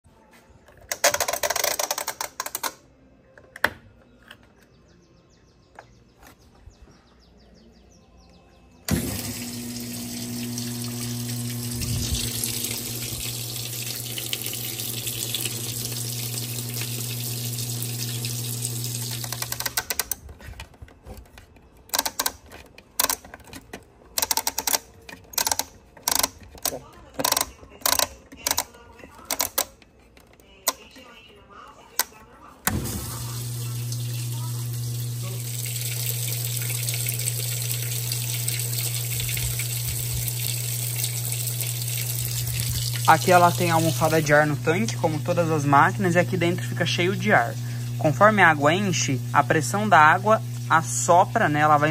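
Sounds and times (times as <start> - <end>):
water rushing into tub: 8.9 - 19.4, 32.7 - 45.3
valve humming: 8.9 - 19.8, 32.7 - 51.9
mechanical clicks: 21.8 - 29.9.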